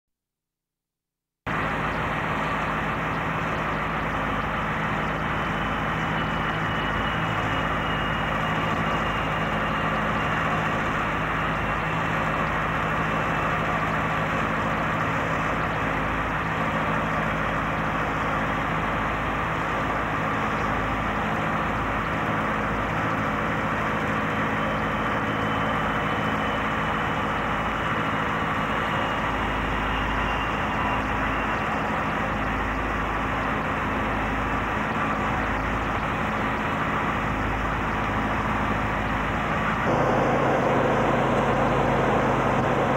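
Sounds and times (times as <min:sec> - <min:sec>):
jet engines droning: 0:38.0 - 0:42.9.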